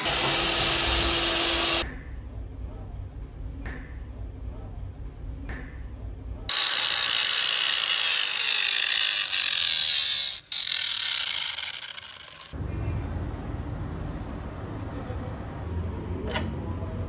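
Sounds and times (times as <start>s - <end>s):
angle grinder cutting steel: 0.0s - 1.8s, 6.5s - 12.6s.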